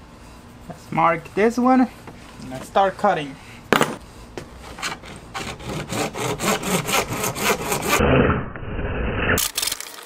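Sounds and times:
hand saw cutting plastic pipe: 0:04.6 - 0:08.0.

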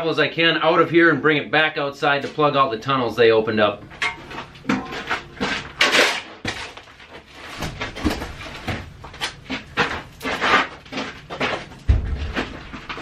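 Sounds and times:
shovel scraping gravel: 0:04.3 - 0:07.6, 0:09.2 - 0:11.7.

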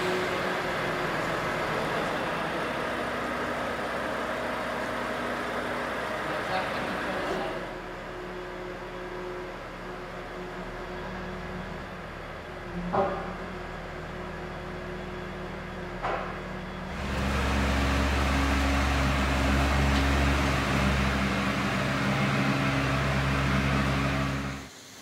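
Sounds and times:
heavy machinery humming: 0:00.0 - 0:24.8
machine with low tones: 0:10.4 - 0:24.7.

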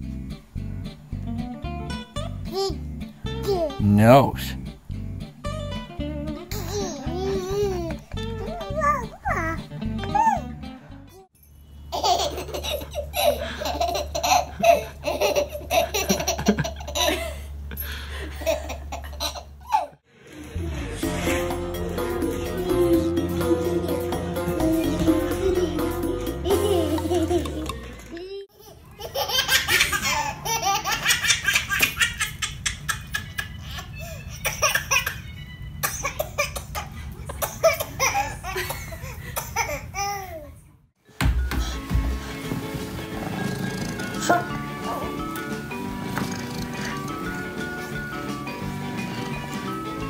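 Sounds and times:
baby laughing: 0:02.2 - 0:02.8, 0:06.4 - 0:10.5, 0:11.9 - 0:17.4, 0:18.3 - 0:20.0, 0:24.6 - 0:40.5.

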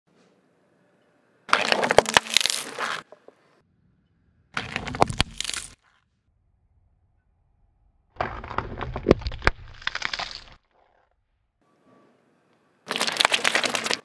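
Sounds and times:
tyre crushing plastic cups: 0:01.5 - 0:03.2, 0:04.6 - 0:05.8, 0:12.9 - 0:14.0.

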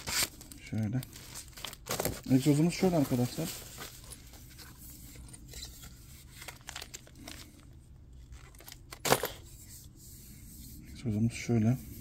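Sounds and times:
bubble wrap crinkling: 0:00.0 - 0:04.6, 0:06.2 - 0:07.6.

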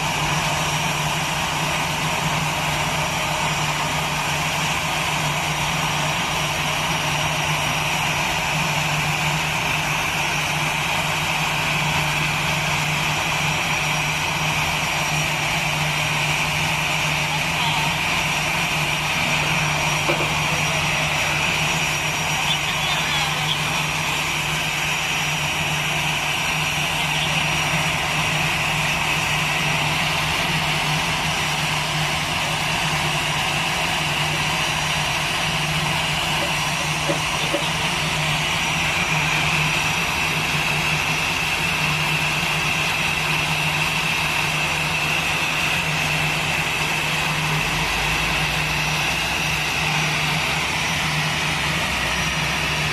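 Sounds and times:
jet engine high whine: 0:00.0 - 0:52.9.

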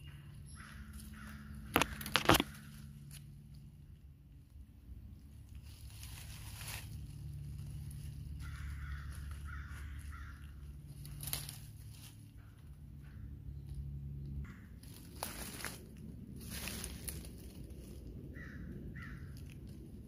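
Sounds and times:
low steady hum: 0:00.0 - 0:20.0
crow cawing: 0:00.5 - 0:02.8, 0:08.3 - 0:11.1, 0:18.3 - 0:19.6.

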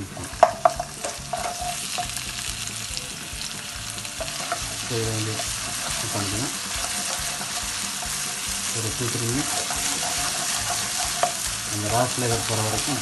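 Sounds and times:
onions sizzling in hot oil: 0:00.0 - 0:13.0
spatula knocking against pan: 0:00.4 - 0:02.2.

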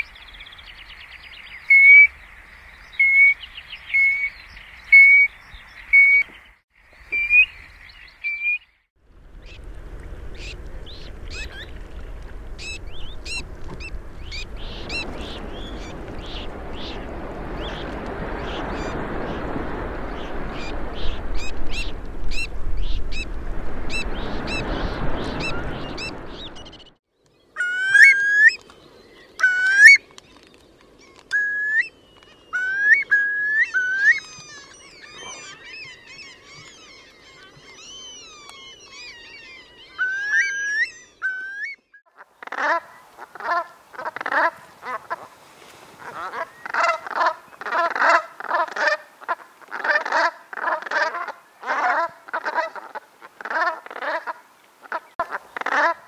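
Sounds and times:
curlews whistled calls: 0:00.0 - 0:08.7, 0:23.9 - 0:42.0
faint sea wash: 0:09.0 - 0:41.3, 0:42.2 - 0:56.0
geese honking: 0:42.1 - 0:45.3, 0:46.0 - 0:56.0.

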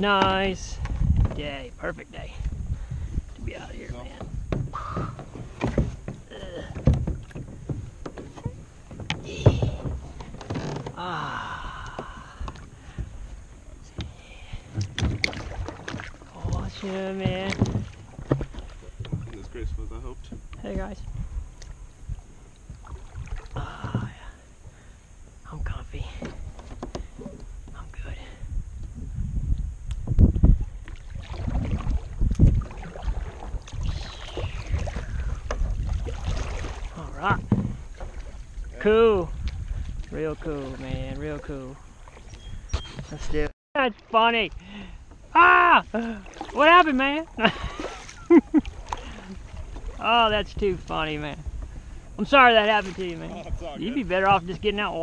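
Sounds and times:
wind rumble on microphone: 0:00.0 - 0:43.5, 0:47.4 - 0:55.0
paddle splashing water: 0:02.4 - 0:28.6, 0:29.6 - 0:55.0
paddle knocking on kayak hull: 0:04.1 - 0:11.0, 0:12.0 - 0:13.3, 0:14.0 - 0:19.4, 0:34.7 - 0:38.4
creaking squeak: 0:09.2 - 0:11.0.

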